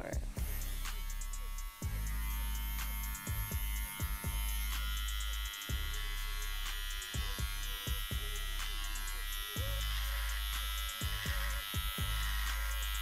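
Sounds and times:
hair trimmer buzzing: 0.4 - 13.0.

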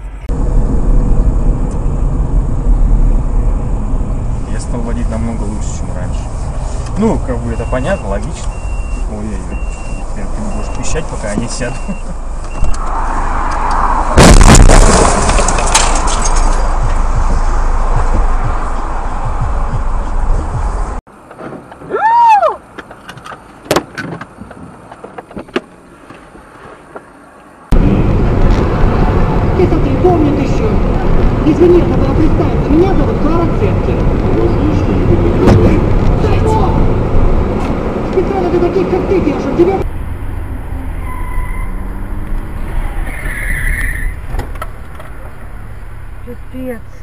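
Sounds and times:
car engine and road noise: 0.0 - 47.0
sharp clicks and knocks: 15.0 - 20.7
whistle-like tone: 41.0 - 41.8.

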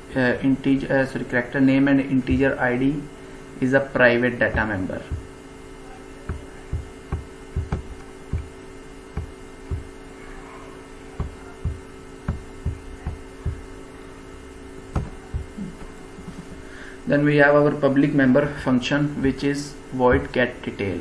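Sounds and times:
steady electrical hum: 0.0 - 21.0
soft knocks and clicks: 6.3 - 8.6, 9.2 - 9.9, 11.2 - 13.6, 15.0 - 15.9.

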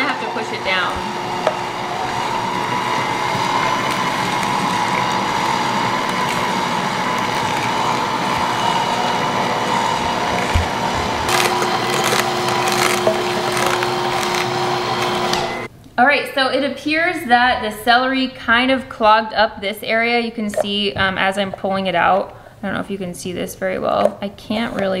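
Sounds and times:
juicer motor hum: 0.0 - 15.7
celery cracking: 2.8 - 15.6.

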